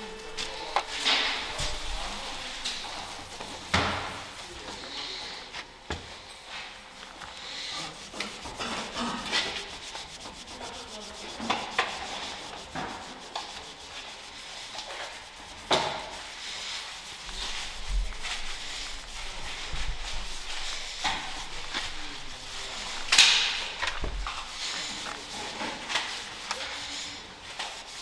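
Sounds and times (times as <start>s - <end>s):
scouring pad scrubbing metal: 0.0s - 5.5s, 7.0s - 28.0s.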